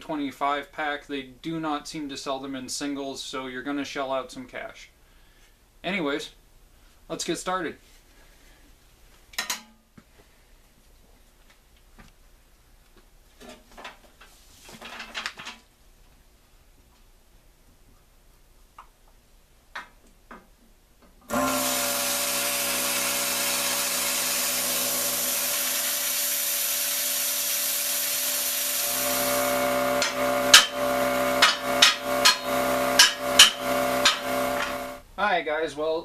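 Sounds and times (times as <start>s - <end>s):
plasma cutter hissing: 21.3s - 35.0s
hammer blows on steel: 28.1s - 35.0s.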